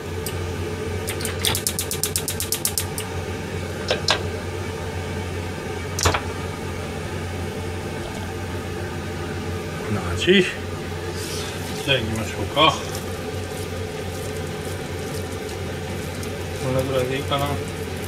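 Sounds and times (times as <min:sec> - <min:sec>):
steady low hum: 0:00.0 - 0:18.0
gas stove igniter ticking: 0:00.2 - 0:00.4, 0:01.0 - 0:03.1, 0:03.8 - 0:04.3.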